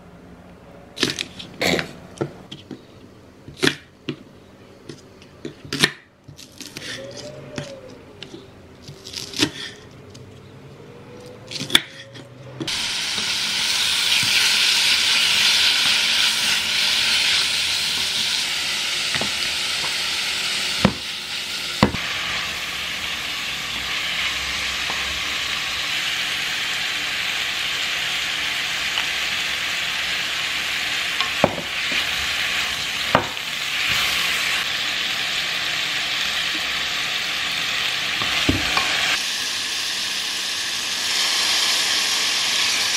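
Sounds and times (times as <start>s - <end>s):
meat sizzling in a hot pan: 12.7s - 42.9s.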